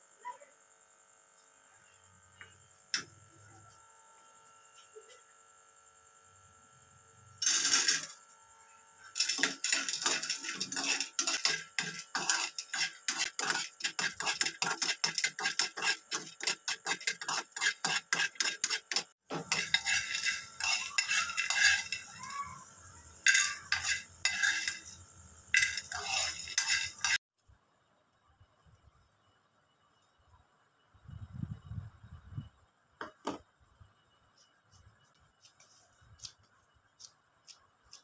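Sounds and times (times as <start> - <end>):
metal spoon scraping frying pan: 7.4 - 8.2, 9.2 - 27.2
faint sizzle: 19.3 - 27.2.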